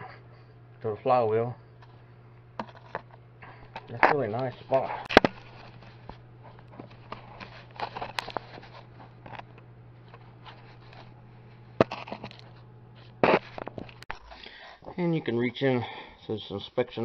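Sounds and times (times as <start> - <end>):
steady low hum: 0.0 - 17.0
camera handling clicks and rustles: 5.1 - 11.1.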